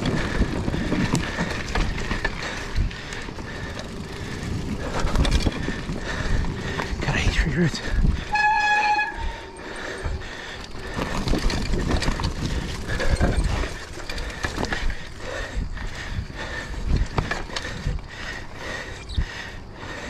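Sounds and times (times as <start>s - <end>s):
bike rattling over roots: 0.0s - 20.0s
brief squeal: 8.3s - 9.6s.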